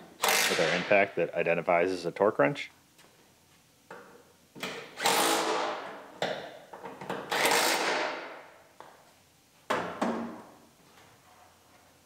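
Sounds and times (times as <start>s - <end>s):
impact wrench bursts: 0.2s - 0.7s, 4.9s - 5.9s, 7.3s - 8.4s.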